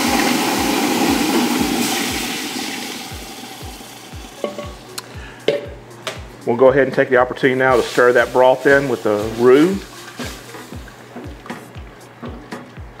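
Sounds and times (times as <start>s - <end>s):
liquid pouring into pot: 0.0s - 4.8s.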